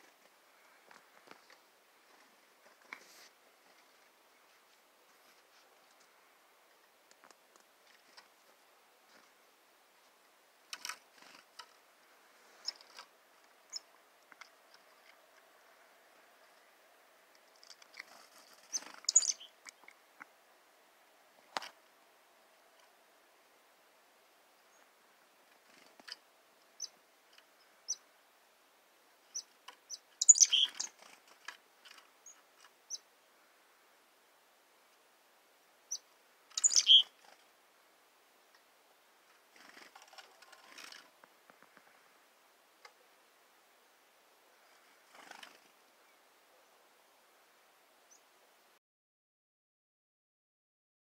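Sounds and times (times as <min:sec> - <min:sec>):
bird chirps: 0:18.6 - 0:19.9, 0:29.3 - 0:31.1, 0:35.9 - 0:37.3.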